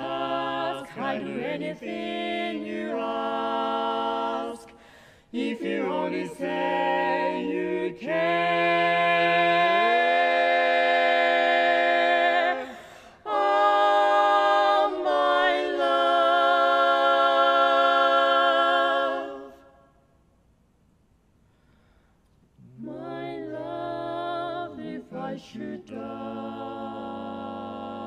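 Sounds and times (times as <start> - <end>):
vocal quartet singing chords: 0.0 - 20.1, 22.6 - 28.0.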